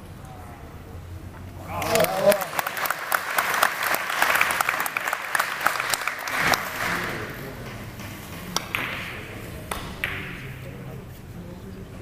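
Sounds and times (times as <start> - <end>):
audience applauding: 1.7 - 7.3.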